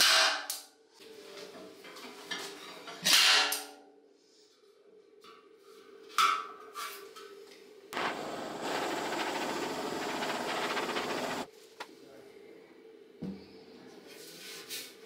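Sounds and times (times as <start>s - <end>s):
gas torch hissing: 8.0s - 11.5s.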